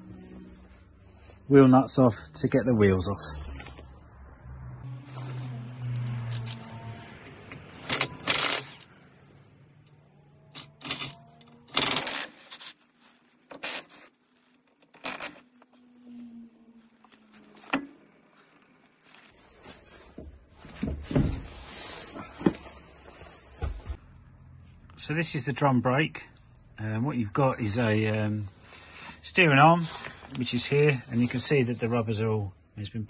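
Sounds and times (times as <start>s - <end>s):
wheel worked off hub: 5.2s - 15.9s.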